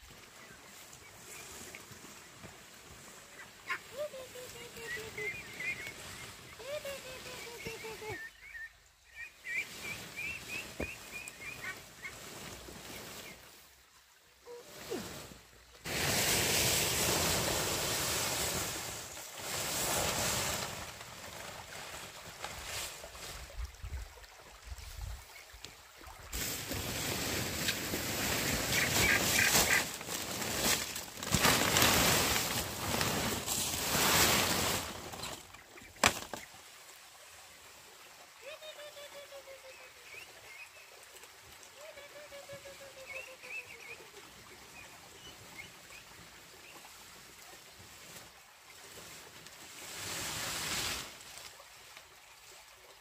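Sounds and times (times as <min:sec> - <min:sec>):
ducks calling: 0:03.4 - 0:12.3, 0:28.7 - 0:30.0
palm fronds dragged over rocks: 0:09.4 - 0:13.8, 0:14.7 - 0:23.6, 0:26.3 - 0:36.7, 0:47.7 - 0:52.1.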